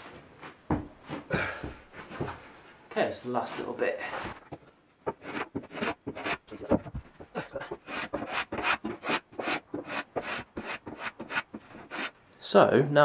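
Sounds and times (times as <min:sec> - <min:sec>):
sandpaper scratching on plywood: 0:05.1 - 0:06.8, 0:07.7 - 0:12.2.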